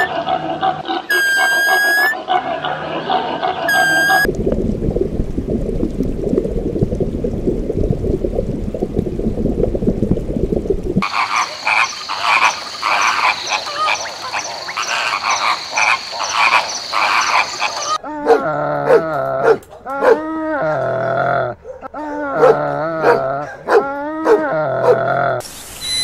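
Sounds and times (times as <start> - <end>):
low rumbling water: 4.1 - 14.8
flamingos honking: 11.0 - 18.0.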